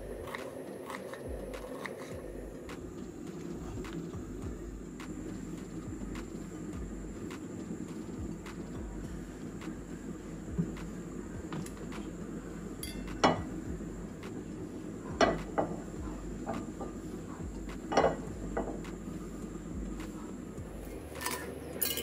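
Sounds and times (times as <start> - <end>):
low background hum: 0.0 - 22.0
utensils clinking against dishes: 12.8 - 13.5, 21.1 - 22.0.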